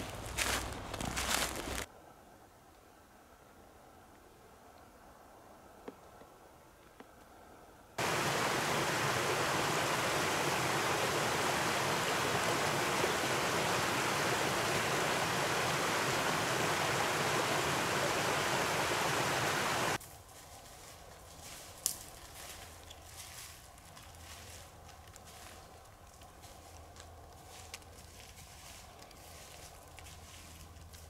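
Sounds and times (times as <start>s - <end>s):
creek rushing over a drop: 8.0s - 20.0s.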